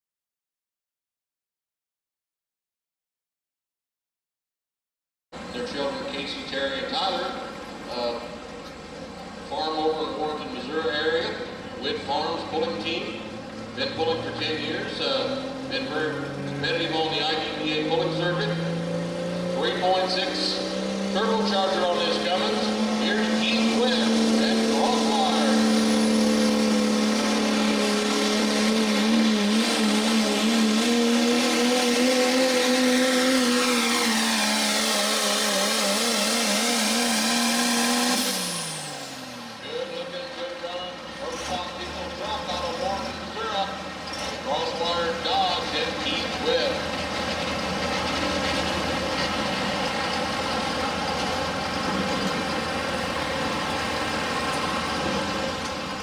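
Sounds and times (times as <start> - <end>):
diesel truck engine at full power: 5.4 - 56.0.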